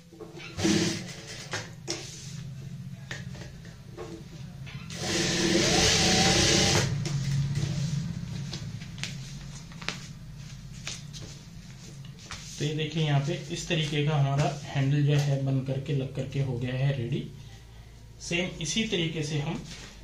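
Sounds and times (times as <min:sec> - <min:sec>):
sewing machine stitching bursts: 0:00.5 - 0:01.5, 0:04.9 - 0:06.9
sewing machine motor humming: 0:00.6 - 0:01.5, 0:04.9 - 0:07.0.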